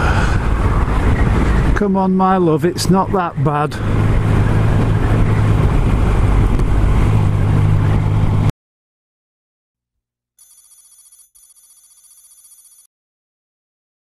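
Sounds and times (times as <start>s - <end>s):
faint electronic ringing tone: 10.4s - 12.9s.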